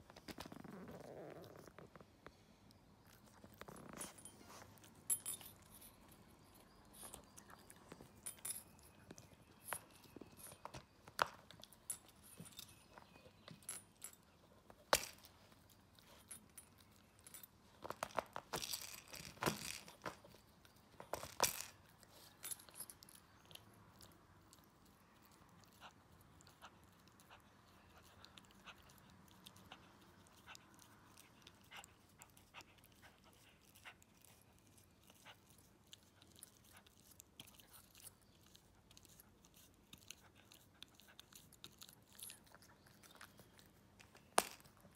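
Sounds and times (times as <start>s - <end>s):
puppy chewing toy: 21.9s - 44.9s.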